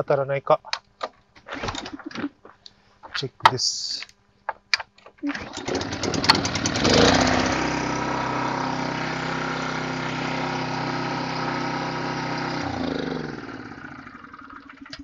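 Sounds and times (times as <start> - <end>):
mower engine recoil-started and idling: 5.3 - 15.0.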